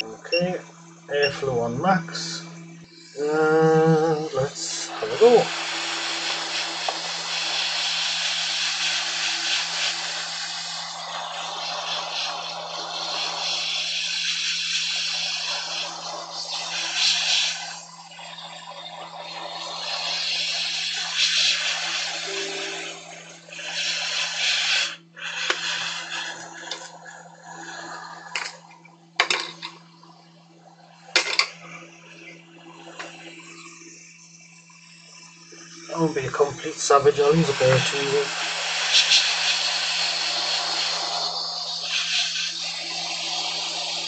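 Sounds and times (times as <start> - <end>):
low hum: 0.0 - 5.2
hot air blower rushing: 0.0 - 28.6, 35.9 - 44.0.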